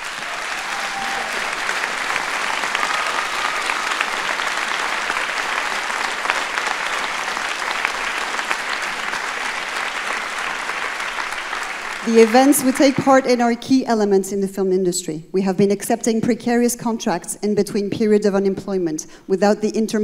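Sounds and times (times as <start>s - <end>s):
large audience applauding: 0.0s - 13.6s.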